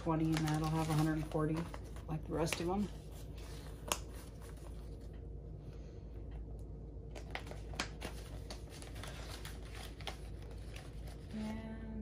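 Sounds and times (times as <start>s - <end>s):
paper rustling: 0.0s - 5.2s, 7.1s - 11.5s
steady low hum: 0.0s - 12.0s.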